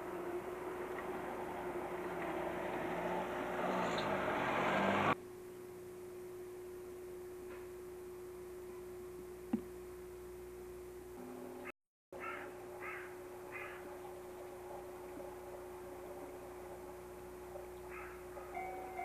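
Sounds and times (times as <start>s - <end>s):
train running close by: 0.0s - 5.2s, 12.6s - 19.0s
electrical hum: 0.0s - 19.0s.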